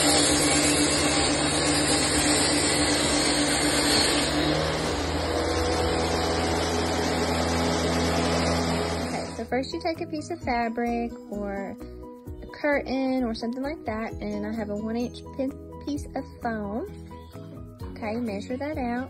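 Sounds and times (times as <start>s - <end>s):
table saw cutting wood: 0.0s - 9.5s.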